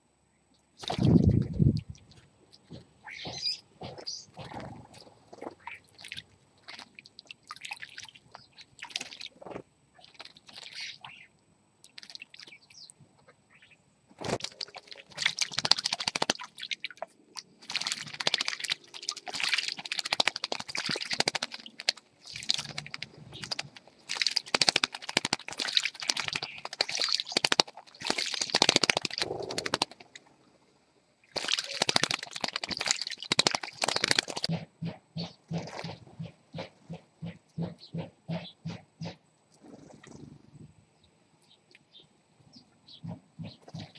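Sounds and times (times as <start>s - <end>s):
birds splashing in water: 3.0s - 12.6s, 14.2s - 30.4s, 31.2s - 38.5s.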